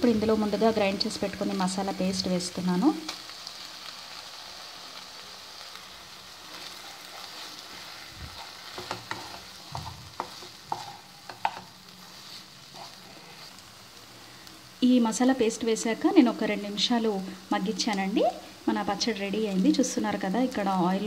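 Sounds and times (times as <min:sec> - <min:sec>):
faint sizzle: 0:00.0 - 0:21.0
spatula scraping and tapping pan: 0:06.5 - 0:13.6.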